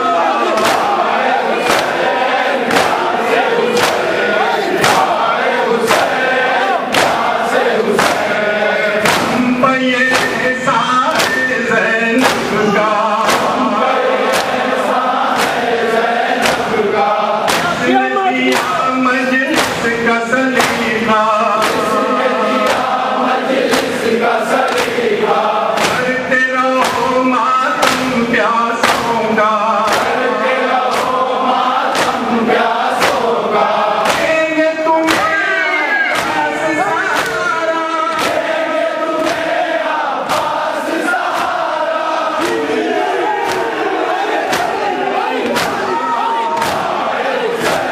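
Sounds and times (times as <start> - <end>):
crowd of men chanting: 0.0 - 47.9
hands slapping chests: 0.5 - 7.4, 8.0 - 8.4, 9.0 - 27.2, 27.8 - 34.4, 35.0 - 39.6, 40.2 - 47.9
man chanting a lament into microphone: 8.2 - 13.8, 17.6 - 22.6, 25.9 - 30.5, 34.2 - 38.4.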